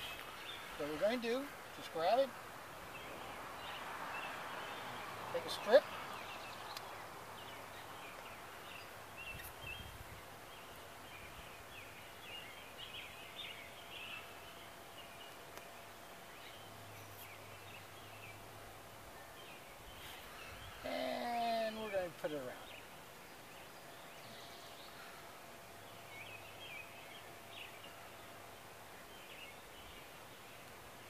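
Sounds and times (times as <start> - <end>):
faint bird chirps: 19.1 - 30.8.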